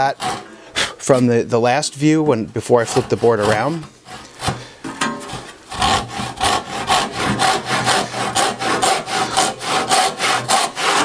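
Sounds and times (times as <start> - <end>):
handsaw rasping through wood: 0.0 - 1.3, 2.6 - 11.0.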